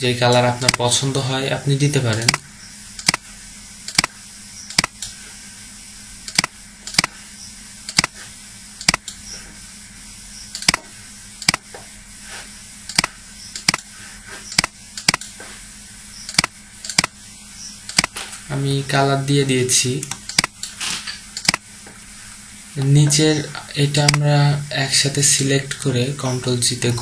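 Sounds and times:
faint hiss and low hum: 0.0 - 27.0
computer mouse clicking: 0.6 - 0.8, 3.0 - 3.2, 3.9 - 5.1, 6.3 - 7.2, 7.9 - 8.2, 8.8 - 9.2, 10.5 - 11.7, 12.9 - 13.9, 14.5 - 15.4, 16.3 - 17.2, 17.9 - 18.2, 20.0 - 20.8, 21.4 - 21.6.

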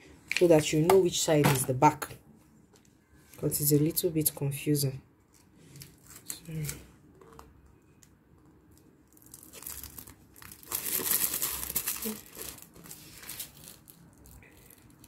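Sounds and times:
transfer paper crinkling: 8.7 - 15.0.

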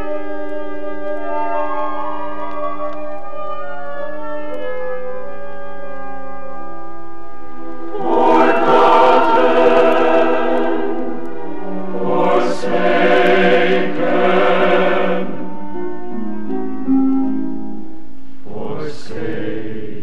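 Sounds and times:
orchestral chords: 0.0 - 17.8
choir singing: 7.6 - 15.6, 18.4 - 20.0.

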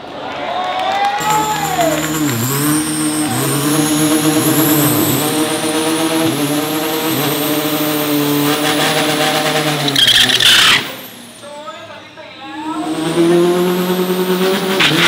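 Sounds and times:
drag car engine revving: 1.2 - 15.0
high turbo whistle: 1.2 - 15.0.

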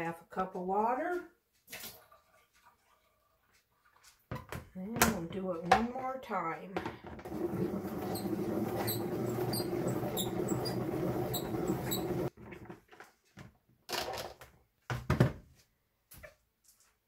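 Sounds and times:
salad spinner whirring: 7.3 - 12.3
plastic knocks and clatter: 12.4 - 15.4.

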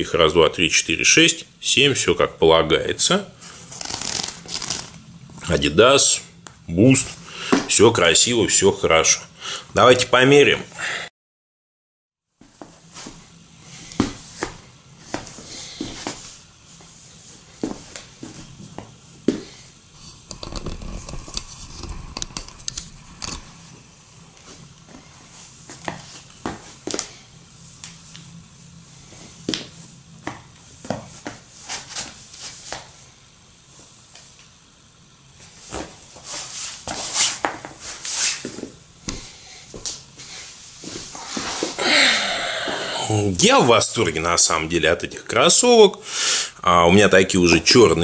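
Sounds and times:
sneakers scuffing on floor: 7.0 - 7.8, 12.4 - 19.6, 24.4 - 27.2, 29.1 - 33.0, 35.4 - 41.8.

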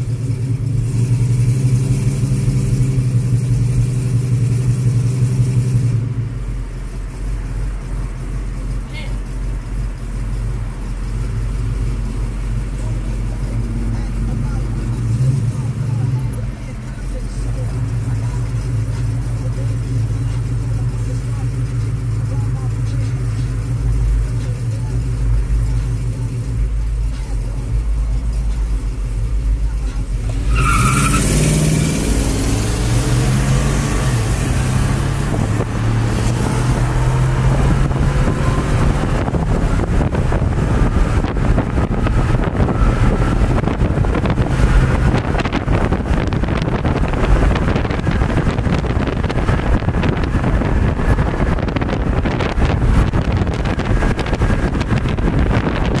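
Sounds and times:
pickup engines accelerating: 0.0 - 56.0
wind and road noise: 0.0 - 56.0
wind buffeting at open window: 37.5 - 56.0.

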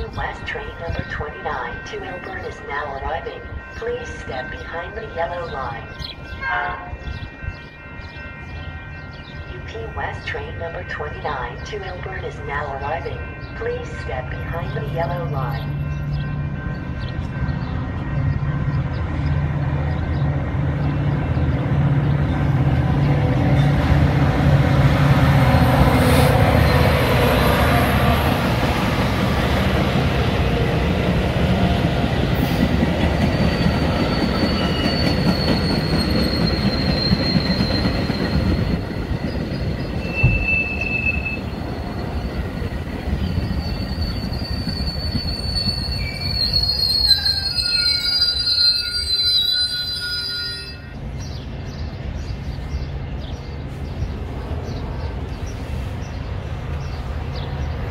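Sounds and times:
diesel locomotive engine drone: 0.0 - 57.9
train cars rolling by: 0.2 - 57.9
high wheel squeal: 33.3 - 39.4, 40.0 - 42.7, 43.3 - 51.0.

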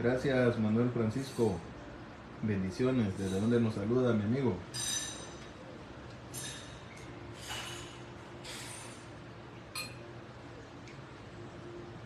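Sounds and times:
fork clinking on ceramic bowl: 9.8 - 10.1.

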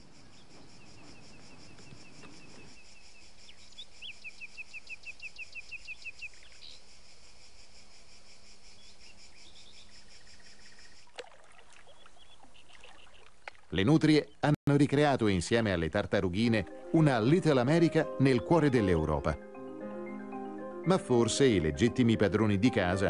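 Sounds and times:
crickets chirring: 0.0 - 11.2.

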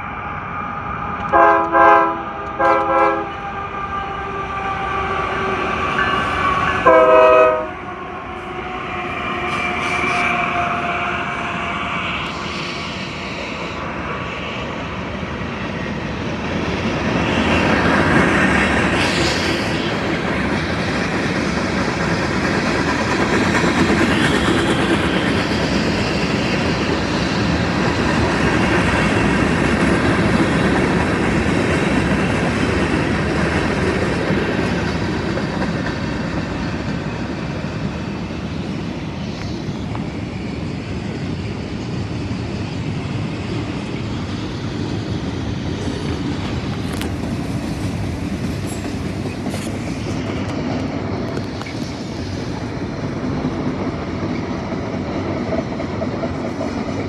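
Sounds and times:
locomotive air horn blasts: 1.3 - 3.4, 6.8 - 7.8.

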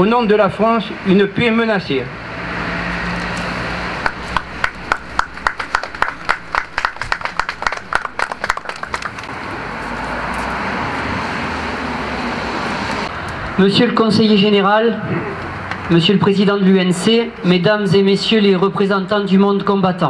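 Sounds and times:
crowd applause: 4.0 - 9.3.

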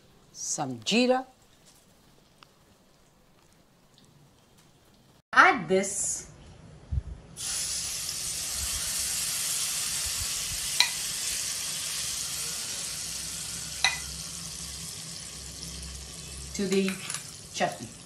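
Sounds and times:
hot oil sizzling: 7.4 - 18.0.

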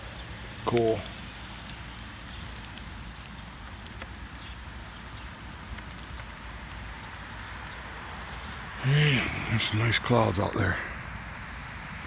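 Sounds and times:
even outdoor hiss: 0.0 - 12.0
faint ticks: 0.1 - 8.7.

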